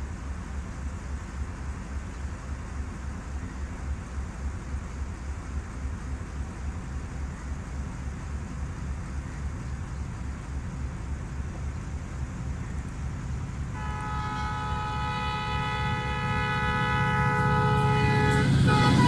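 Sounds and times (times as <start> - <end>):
diesel locomotive rumble: 0.0 - 19.0
locomotive air horn blast: 13.7 - 19.0.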